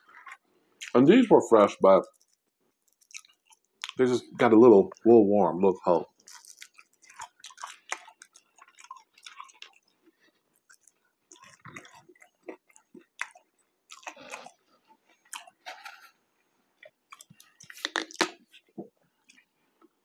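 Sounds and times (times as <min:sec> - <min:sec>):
chewing with mouth clicks: 0:00.0 - 0:01.0, 0:02.0 - 0:04.1, 0:06.1 - 0:16.0, 0:16.8 - 0:18.6, 0:19.2 - 0:19.9.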